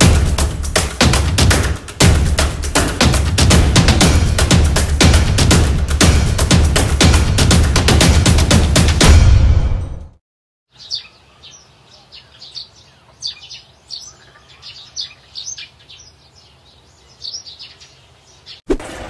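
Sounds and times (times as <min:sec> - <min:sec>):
electronic music: 0:00.0 - 0:09.1
small birds chirping: 0:10.7 - 0:18.7.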